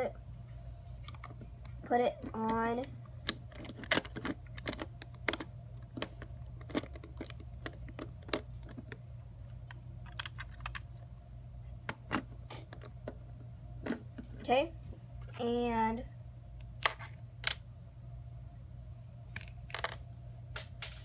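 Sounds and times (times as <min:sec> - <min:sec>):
low steady hum: 0:00.0 - 0:21.0
plastic bricks clicking: 0:03.2 - 0:09.0.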